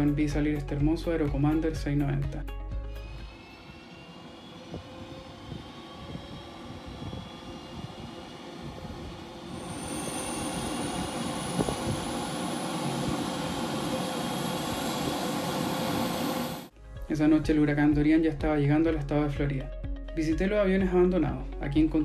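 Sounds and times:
turboprop engines whining: 0:02.7 - 0:16.7.

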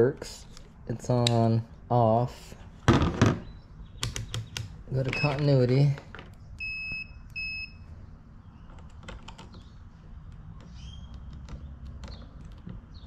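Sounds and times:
probe tips clicking on terminals: 0:04.0 - 0:05.6.

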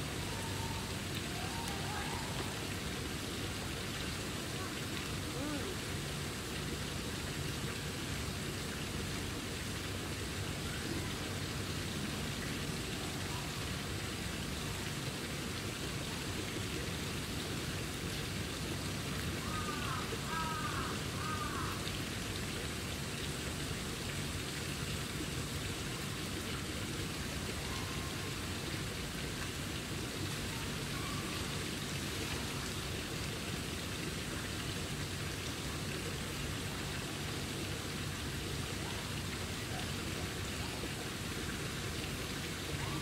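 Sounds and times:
outdoor background hiss: 0:00.0 - 0:43.0.

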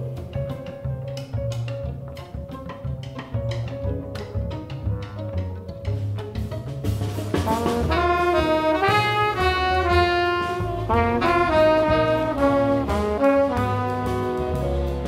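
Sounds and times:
drums: 0:00.0 - 0:15.0
string section: 0:00.0 - 0:15.0
upright bass: 0:00.0 - 0:15.0
trumpet and saxophone melody: 0:07.4 - 0:15.0.

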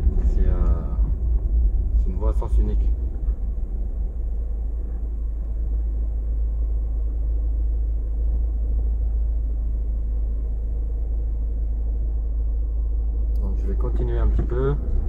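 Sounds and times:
car engine rumble inside cabin: 0:00.0 - 0:15.0.

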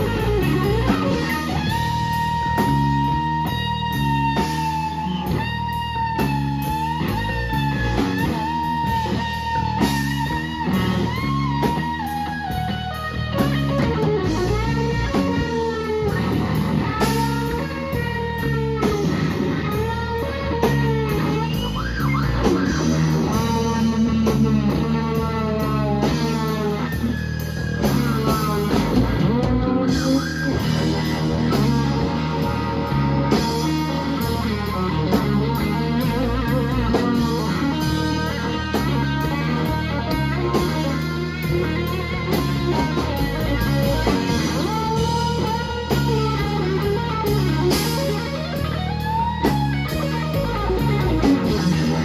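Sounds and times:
drum kit: 0:00.0 - 0:52.0
electric bass: 0:00.0 - 0:52.0
electric guitar solo: 0:00.0 - 0:52.0.

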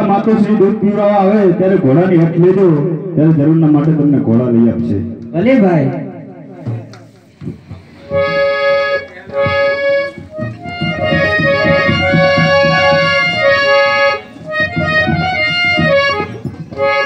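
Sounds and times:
barrel drum beats: 0:00.0 - 0:17.0
harmonium melody: 0:08.0 - 0:17.0.

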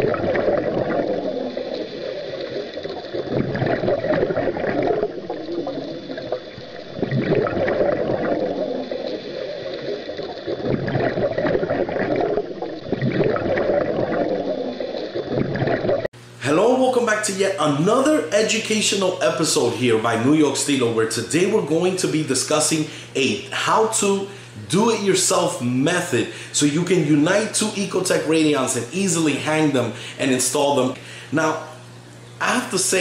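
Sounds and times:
muffled underwater bubbling: 0:00.0 - 0:16.1.

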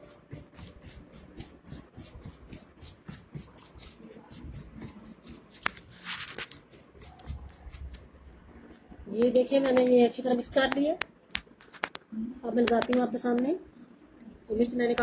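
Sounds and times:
powder stirred in metal tray: 0:00.0 - 0:08.0.

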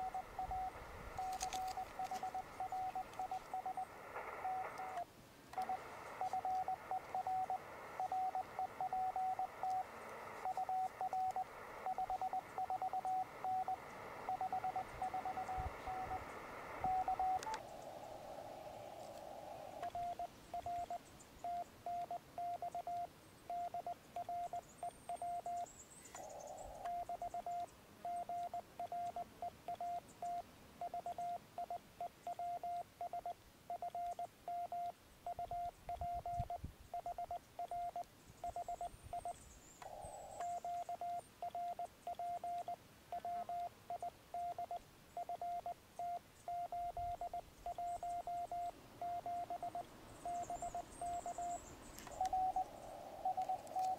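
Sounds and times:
morse code tone: 0:00.0 - 0:05.0, 0:05.6 - 0:16.2, 0:16.8 - 0:17.6, 0:19.9 - 0:25.6, 0:26.9 - 0:53.9
radio hiss bursts: 0:00.0 - 0:22.0, 0:47.0 - 0:53.9.

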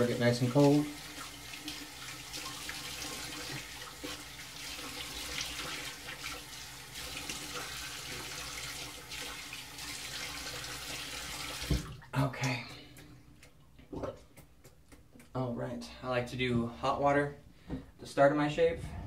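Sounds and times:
tap running into basin: 0:10.9 - 0:12.0.

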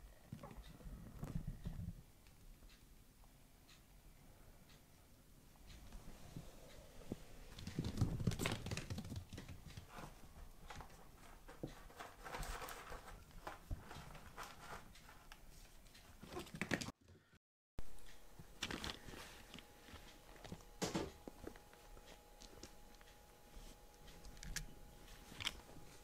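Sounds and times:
paws pattering and scratching: 0:07.5 - 0:16.9
scratchy rustle in cat litter: 0:07.6 - 0:16.4.

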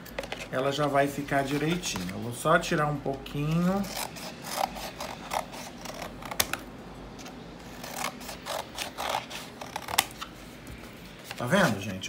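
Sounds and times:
scissors snipping cardboard: 0:03.5 - 0:06.6.

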